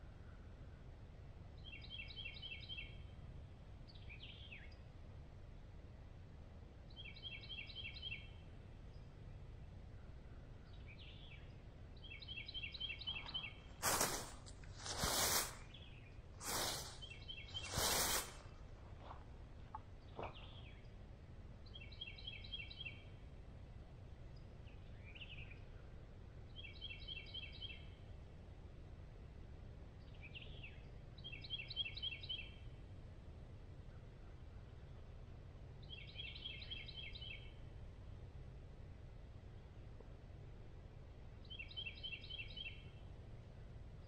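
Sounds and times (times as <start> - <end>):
steady low rumble: 8.3 - 21.8
songbird high trill: 12.6 - 18.4.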